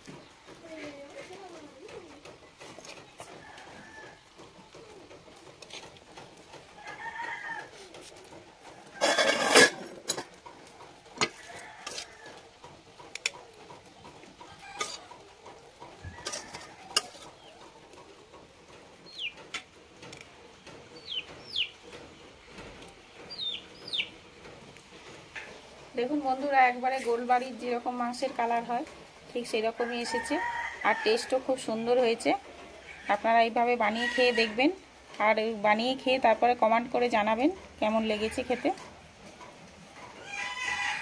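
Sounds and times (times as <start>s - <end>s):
chickens clucking: 0.0s - 35.5s, 37.1s - 41.0s
small birds chirping: 19.0s - 19.5s, 20.4s - 24.3s.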